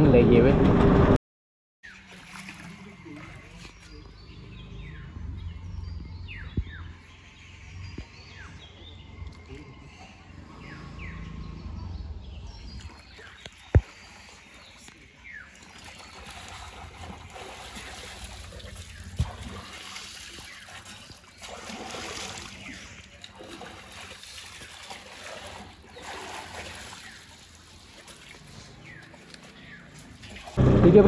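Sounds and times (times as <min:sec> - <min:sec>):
water splashing and trickling: 0:01.8 - 0:11.5, 0:12.2 - 0:30.7.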